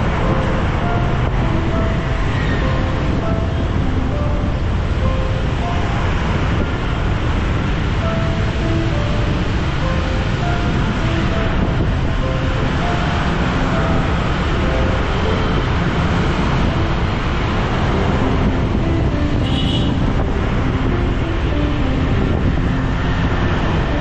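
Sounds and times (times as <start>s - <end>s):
traffic noise: 0.0s - 24.0s
wind rushing on microphone: 0.0s - 24.0s
high-pitched horn beep: 19.3s - 20.2s.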